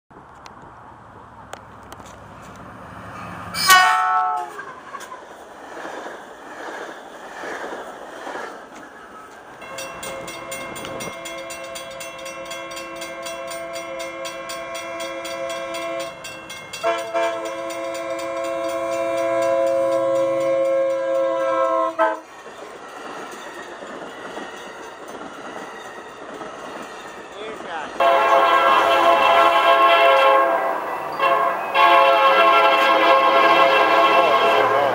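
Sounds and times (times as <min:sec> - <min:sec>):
train rumbling and clattering past: 0:00.1 - 0:34.9
train horn long chord: 0:03.5 - 0:04.6, 0:09.6 - 0:22.2, 0:28.0 - 0:34.9.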